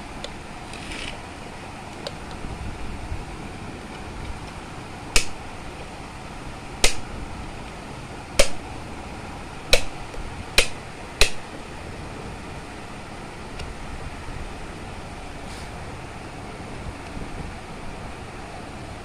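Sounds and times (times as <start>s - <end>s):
rotary knob clicking: 0.2s - 1.2s.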